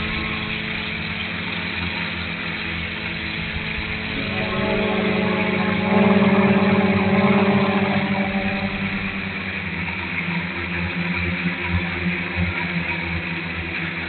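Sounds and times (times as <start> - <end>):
drone propellers buzzing: 4.0 - 10.0.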